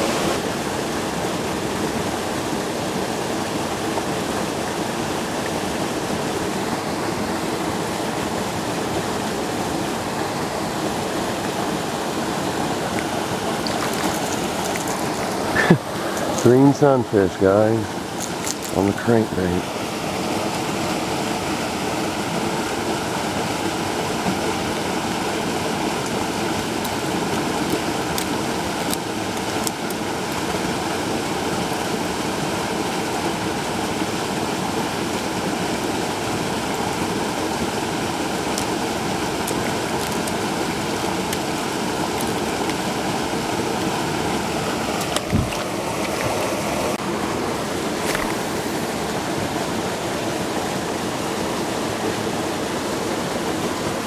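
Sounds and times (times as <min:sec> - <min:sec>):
water pouring from a pipe: 0:05.2 - 0:47.2.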